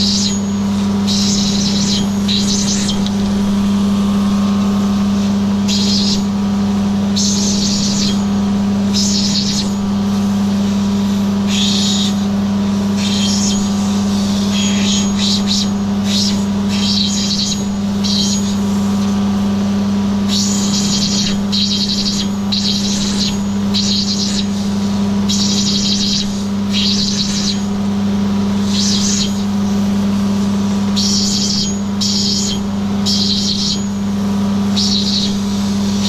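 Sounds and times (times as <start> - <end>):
electric motor humming: 0.0 - 36.0.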